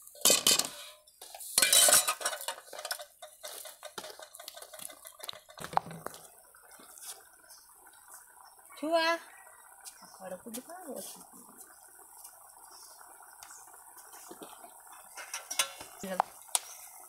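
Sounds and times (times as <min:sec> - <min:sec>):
metal ladle scraping a wok: 0:00.1 - 0:05.4.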